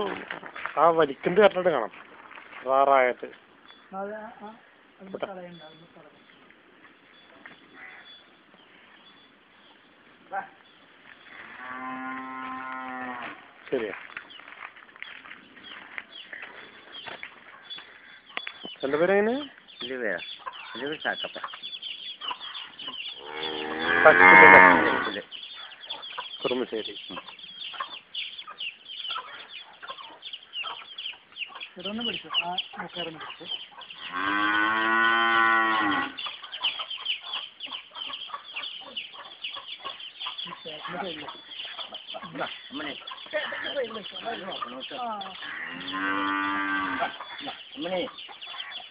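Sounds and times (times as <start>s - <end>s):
cow mooing: 11.4s - 13.3s, 23.2s - 25.2s, 34.1s - 36.2s, 45.4s - 47.2s.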